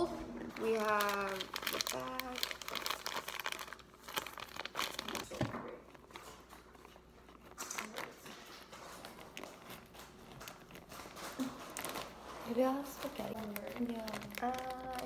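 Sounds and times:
plastic bag crinkling: 0.0 - 15.0
scissors cutting plastic: 7.4 - 15.0.

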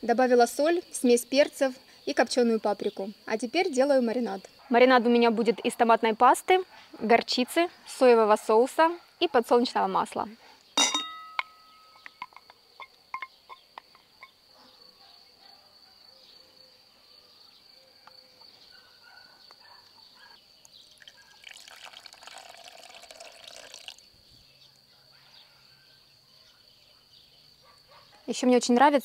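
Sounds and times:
high insect trill: 10.7 - 26.2.

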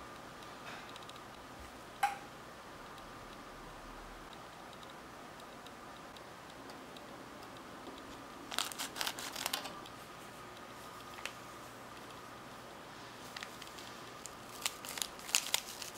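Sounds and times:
scissors snipping foil packet: 8.5 - 9.8, 13.3 - 15.9.

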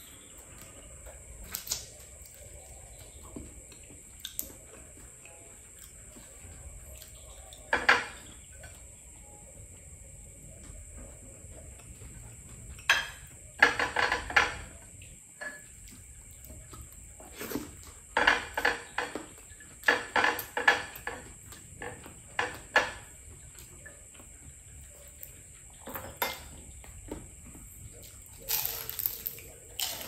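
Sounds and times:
plates and tableware clinking: 12.8 - 14.7, 25.8 - 26.6.

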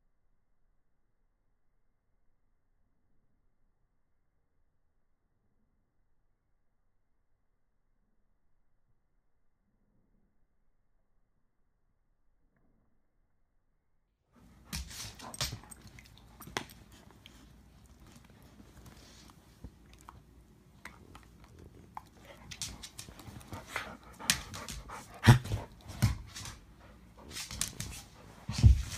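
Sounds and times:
puppies scuffling: 21.8 - 28.9.

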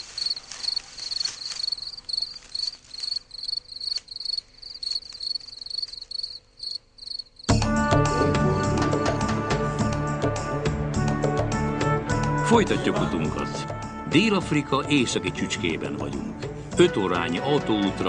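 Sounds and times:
cricket chirping: 0.0 - 7.6
instrumental music: 7.5 - 18.0.

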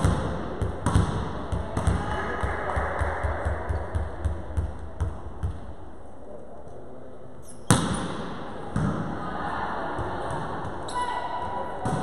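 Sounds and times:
ball bouncing on wooden floor: 0.0 - 5.6.

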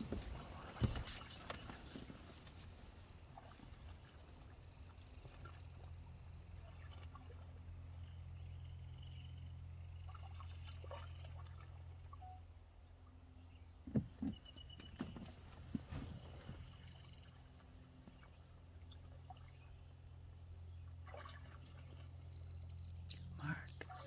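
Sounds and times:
faint low hum: 0.0 - 24.0.

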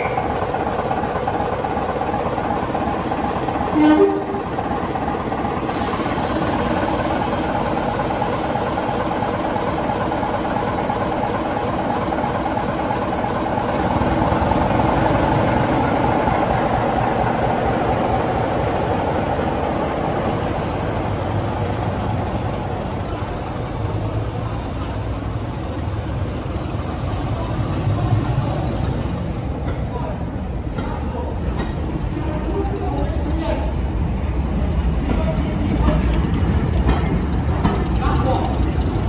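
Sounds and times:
deep rumble of moving locomotive: 0.0 - 39.0
diesel locomotive engine running: 0.0 - 39.0.

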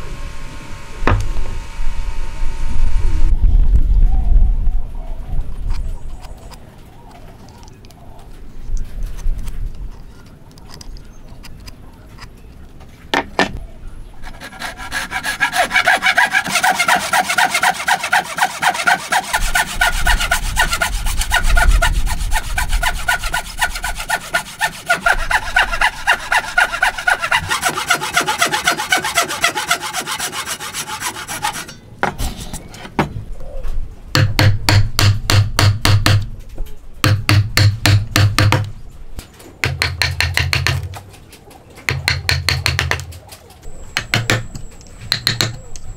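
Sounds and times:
handsaw cutting wood: 14.2 - 31.7.

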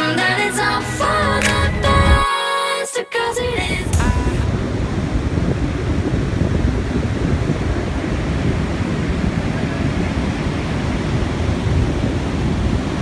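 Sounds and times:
surf washing: 3.2 - 13.0
wind buffeting microphone: 3.4 - 13.0.

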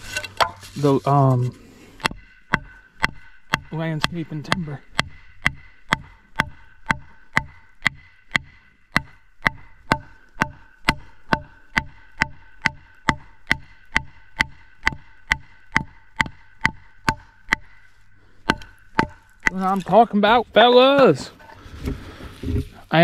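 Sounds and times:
wooden board knocking hatchet head: 2.0 - 17.8, 18.4 - 20.0.

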